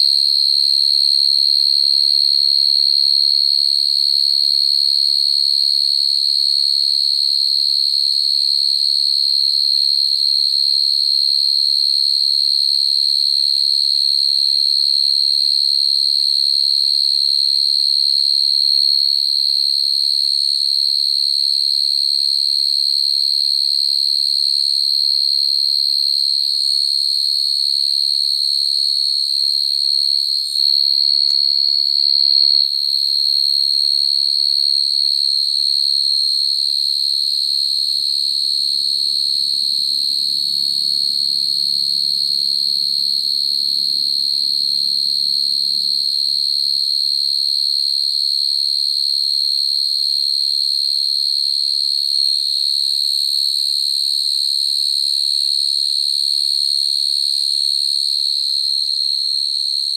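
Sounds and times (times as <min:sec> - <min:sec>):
crickets trilling: 0:34.6 - 0:47.4.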